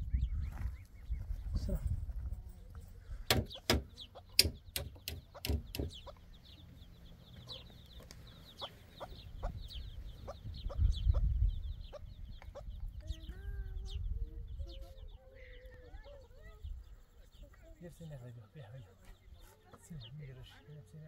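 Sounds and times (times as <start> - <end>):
loud sharp knocks: 3.3 - 6.0
chicken clucking: 7.3 - 12.9.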